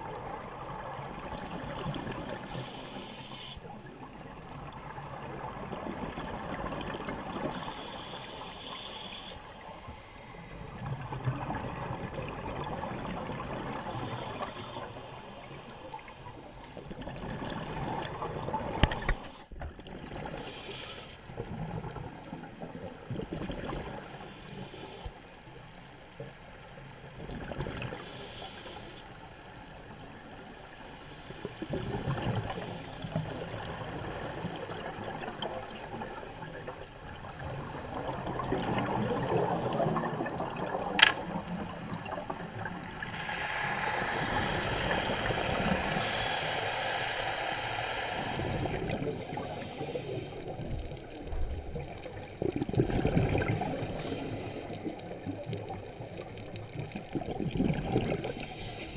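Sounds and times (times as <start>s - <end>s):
regulator hiss on inhale: 0.9s - 3.9s, 7.4s - 10.9s, 13.7s - 16.9s, 18.8s - 19.5s, 20.3s - 21.5s, 24.0s - 26.1s, 27.9s - 34.5s, 35.2s - 38.1s, 39.3s - 51.3s, 53.4s - 55.5s, 58.2s - 58.9s
exhaled bubbles bubbling: 33.1s - 43.2s, 48.3s - 58.5s.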